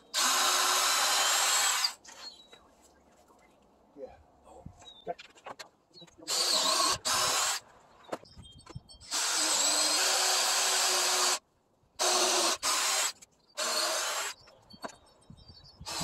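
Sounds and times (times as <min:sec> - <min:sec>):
cordless drill boring into wood: 0:00.1 - 0:02.0, 0:06.3 - 0:07.6, 0:09.1 - 0:11.4, 0:12.0 - 0:14.4.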